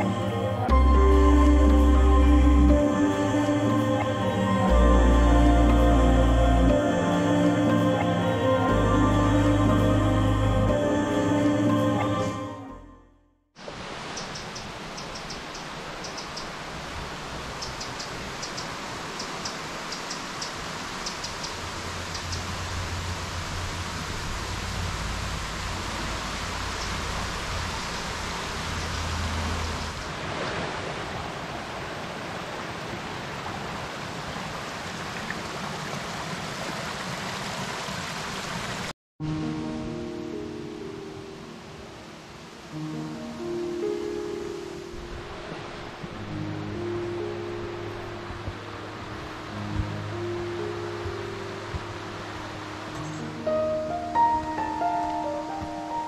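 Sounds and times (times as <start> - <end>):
stream rushing over rocks: 13.6 - 38.9, 47.8 - 56.0
faint high ticks: 17.6 - 22.5.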